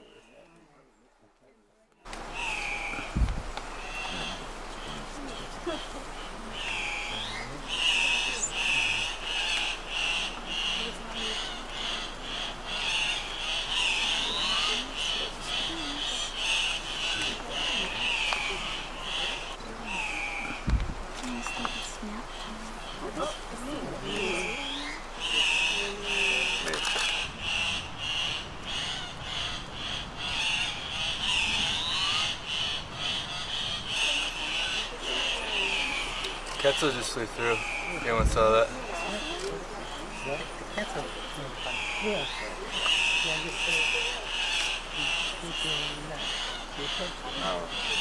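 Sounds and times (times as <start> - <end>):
birds squawking harshly: 2.1 - 48.0.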